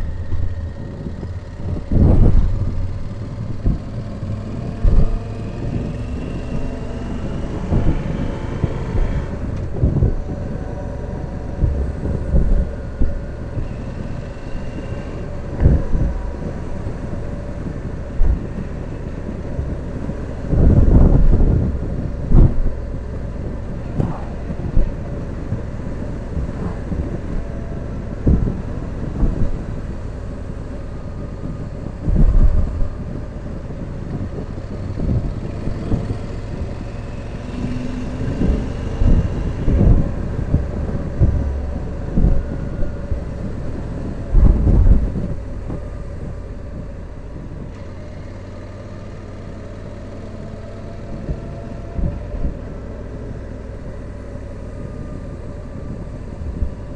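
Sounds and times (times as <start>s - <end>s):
motorcycle engine running: 0.0s - 56.9s
wind thumps on microphone: 0.0s - 56.9s.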